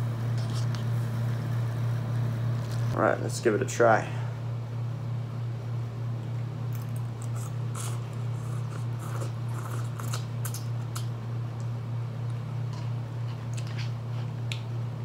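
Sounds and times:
steady low hum: 0:00.0 - 0:15.0
person slurping and chewing noodles: 0:06.7 - 0:11.1.

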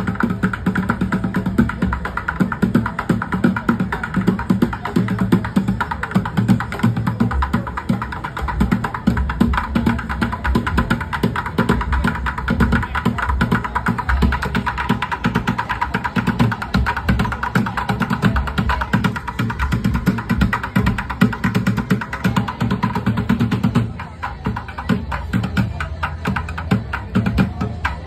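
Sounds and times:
drumming on plastic buckets: 0:00.0 - 0:28.0.

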